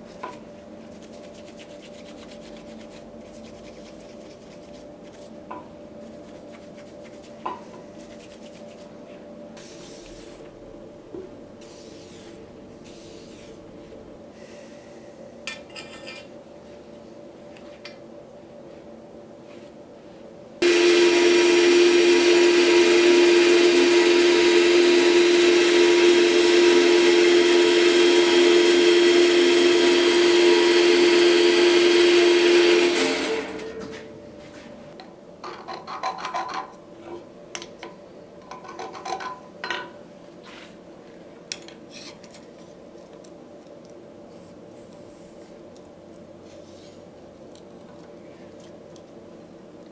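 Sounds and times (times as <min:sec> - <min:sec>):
metal-cutting bandsaw running: 0:20.6 - 0:33.8.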